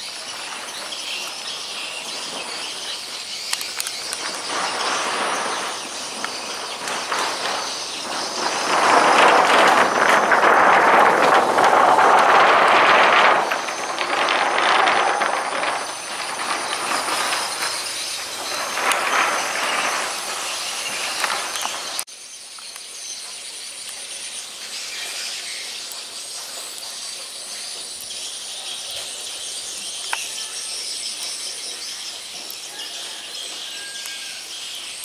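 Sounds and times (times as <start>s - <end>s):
insects trilling: 0.0s - 35.0s
loud rushing noise: 4.0s - 22.1s.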